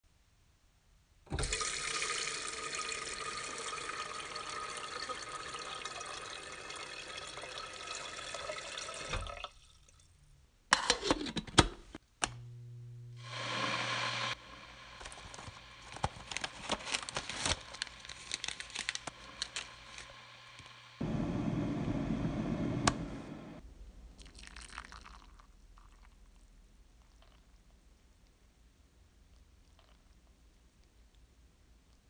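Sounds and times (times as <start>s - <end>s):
faucet running into kettle: 1.3s - 10.0s
low hum: 12.2s - 24.2s
steady hiss: 17.4s - 23.6s.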